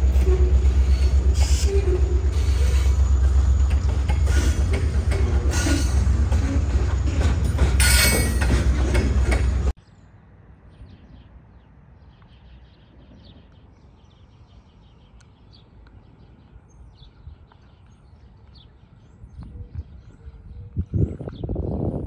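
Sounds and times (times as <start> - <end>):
train wheels on rail: 0.0 - 9.8.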